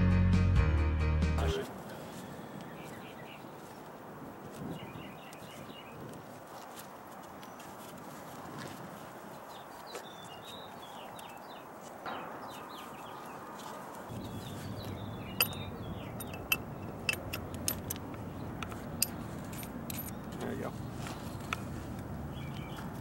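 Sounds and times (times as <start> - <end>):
outdoor background noise: 1.4 - 23.0
small birds chirping: 1.6 - 23.0
sharp metallic clicks: 15.4 - 20.5.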